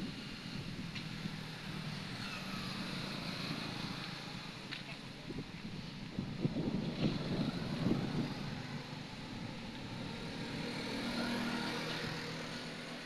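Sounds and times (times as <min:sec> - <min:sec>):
distant vehicle engine passing: 0:06.5 - 0:13.0.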